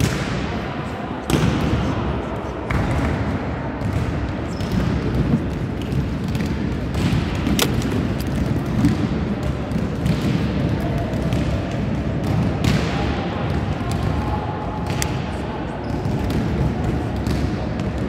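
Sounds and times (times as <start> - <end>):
echoing sports hall din: 0.0 - 18.0
volleyballs thudding: 2.7 - 14.2
sharp ball smack: 6.3 - 9.0.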